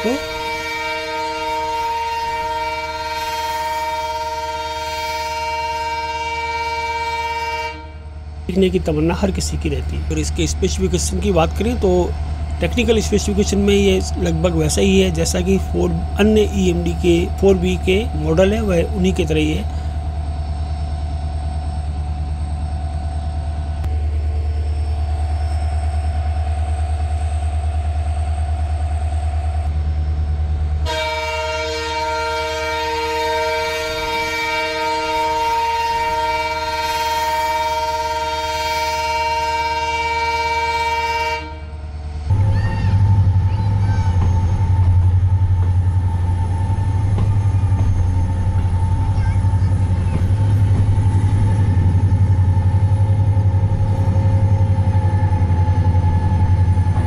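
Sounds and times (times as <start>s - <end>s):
locomotive horn blast: 0.0s - 8.2s, 30.8s - 57.0s
diesel locomotive engine humming: 0.0s - 57.0s.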